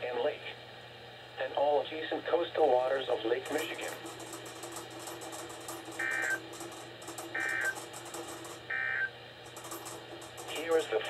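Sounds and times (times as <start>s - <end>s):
faint radio hiss: 0.0s - 4.8s, 10.4s - 11.0s.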